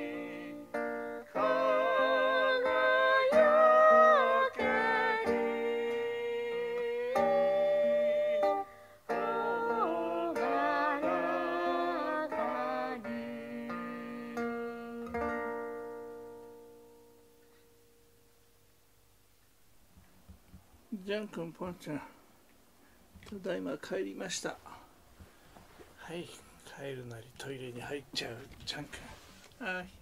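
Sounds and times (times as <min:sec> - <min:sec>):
person singing a hymn: 0:00.0 - 0:15.7
acoustic guitar: 0:00.0 - 0:19.4.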